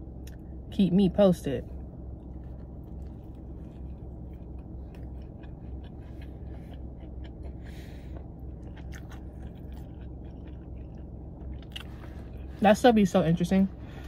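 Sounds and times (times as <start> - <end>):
steady low hum: 0.0 - 14.0
person chewing: 1.7 - 12.6.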